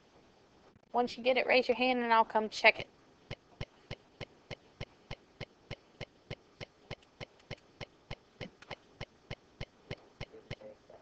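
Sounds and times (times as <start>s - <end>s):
faint rapid clicking: 2.8s - 10.7s.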